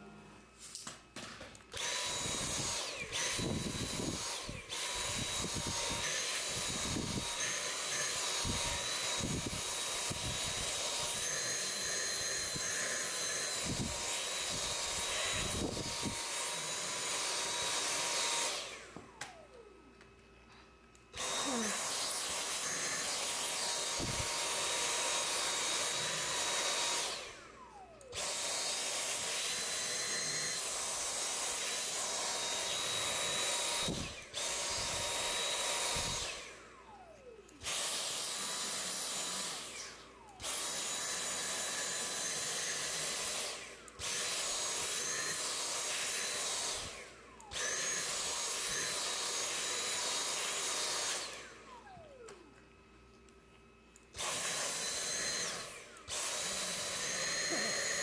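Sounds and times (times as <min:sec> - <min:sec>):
handheld vacuum whining: 0:00.7 - 0:58.0.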